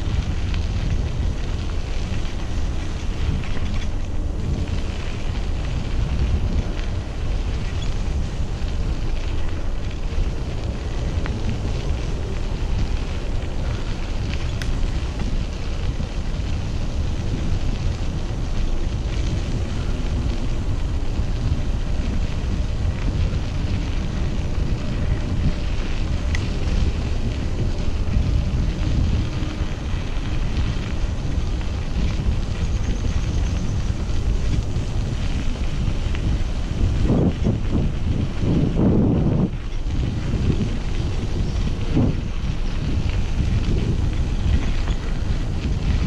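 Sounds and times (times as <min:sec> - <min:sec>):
wind rumbling on microphone: 0:00.0 - 0:46.0.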